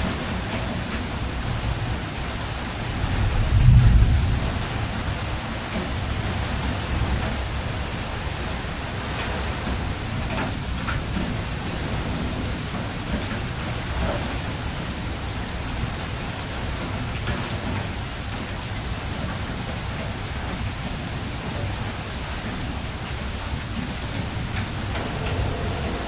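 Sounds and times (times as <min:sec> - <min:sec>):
rain hissing: 0:00.0 - 0:26.0
low rumble: 0:24.5 - 0:26.0.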